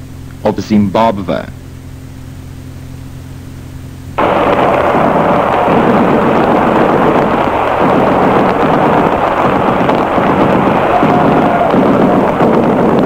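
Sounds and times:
radio hum and hiss: 0.0 - 13.0
loud dense radio crackling: 4.2 - 13.0.

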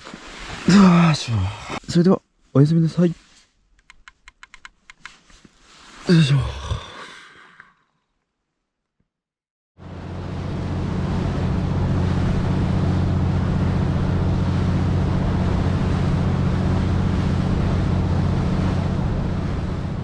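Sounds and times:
motorboat engine droning: 9.8 - 20.0
water rushing along hull: 9.8 - 20.0.

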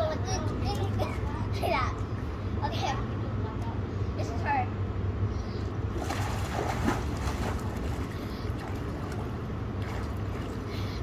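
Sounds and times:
steady low rumble: 0.0 - 11.0
pool water splashing: 5.9 - 10.7.

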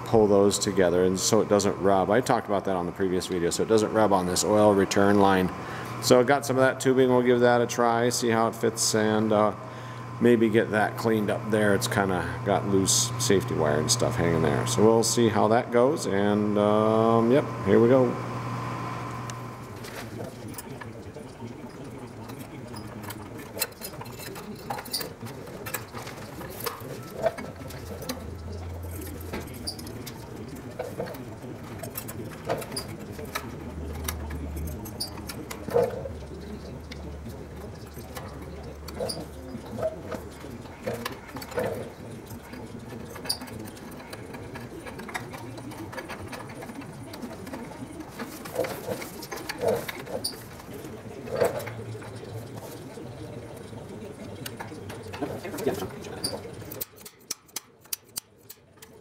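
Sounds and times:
short low hum: 9.5 - 10.4
wire clicking and rustling: 19.0 - 59.0.

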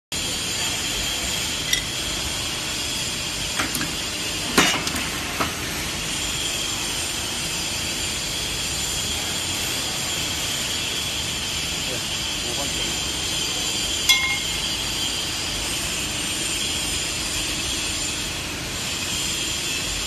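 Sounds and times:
metallic clinks and knocks: 14.1 - 14.6.

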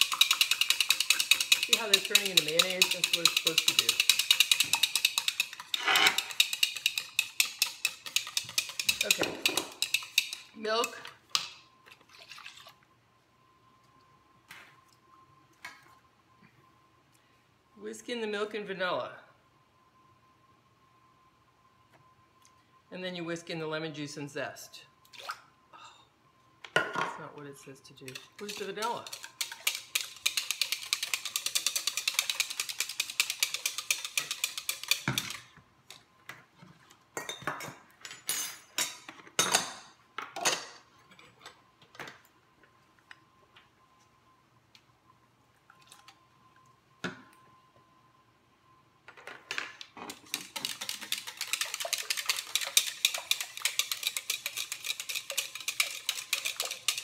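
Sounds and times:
whisk beating batter in bowl: 0.0 - 10.5, 28.1 - 35.4, 50.1 - 57.0.

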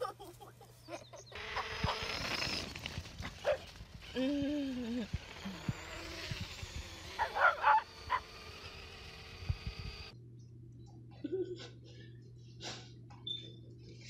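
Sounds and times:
dog barking: 7.2 - 8.2.

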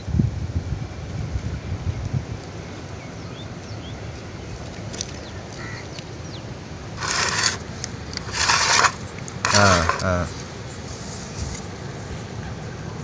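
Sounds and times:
wind rumble: 0.0 - 9.5
loud scraping rustle: 6.9 - 11.7.

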